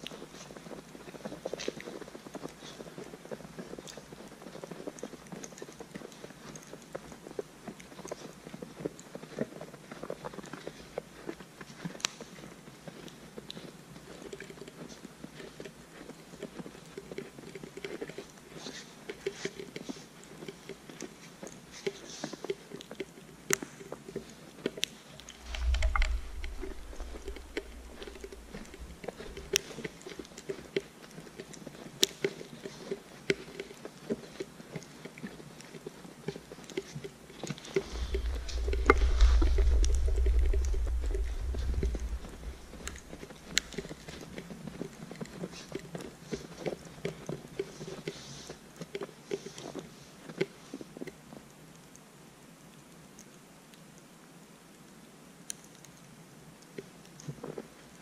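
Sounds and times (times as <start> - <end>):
sharp snaps: 24.7 - 30.9
deep low rumble: 25.2 - 29.6, 37.8 - 43.8
footsteps in snow: 25.3 - 30.3, 37.6 - 44.4.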